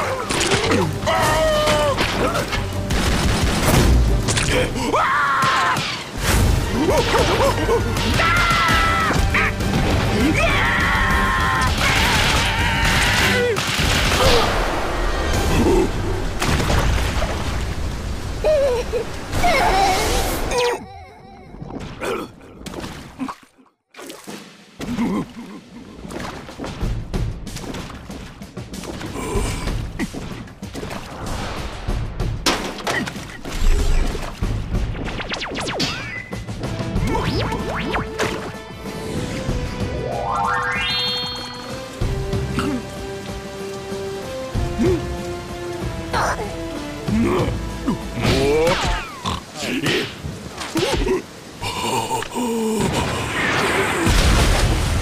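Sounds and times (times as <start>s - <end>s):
rain falling: 0.0s - 5.4s, 6.0s - 20.6s, 27.6s - 30.2s, 36.4s - 55.0s
background music: 0.0s - 17.6s, 24.8s - 49.8s.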